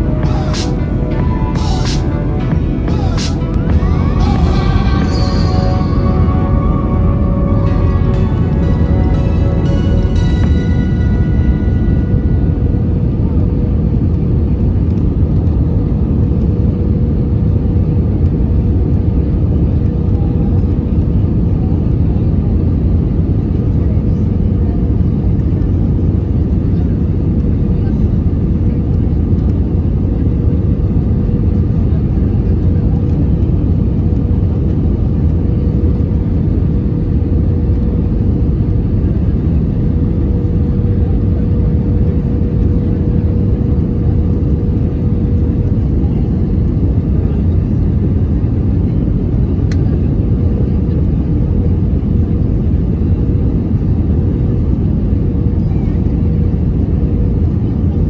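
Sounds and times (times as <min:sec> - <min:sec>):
steady cabin hum: 0:00.0 - 0:16.4
engine and airflow rush: 0:00.0 - 0:58.0.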